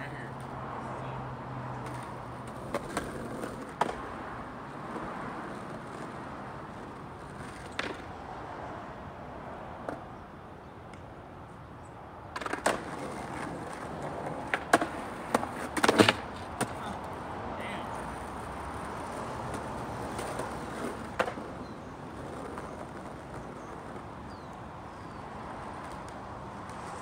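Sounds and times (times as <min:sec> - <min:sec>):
skateboard wheels rolling on asphalt: 0:00.0 - 0:27.0
skateboard clacking on ground: 0:01.7 - 0:04.2, 0:04.9 - 0:08.2, 0:09.8 - 0:10.1, 0:12.3 - 0:27.0.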